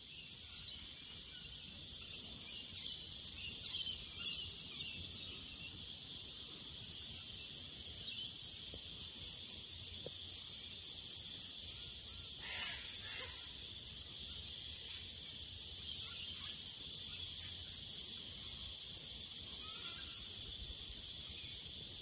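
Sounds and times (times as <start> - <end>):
high-pitched insect chorus: 0.0 - 22.0.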